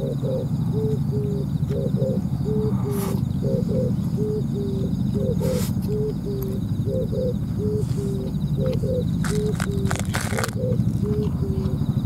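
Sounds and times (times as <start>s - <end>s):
dove cooing: 0.0s - 12.0s.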